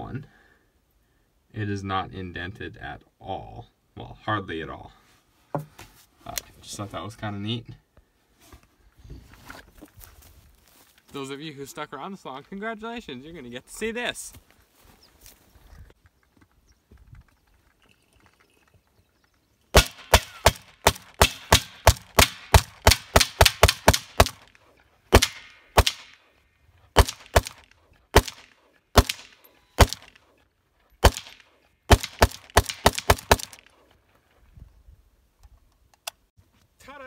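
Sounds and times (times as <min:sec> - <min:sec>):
rifle firing: 0:19.8 - 0:26.3, 0:27.0 - 0:30.3, 0:31.0 - 0:33.8.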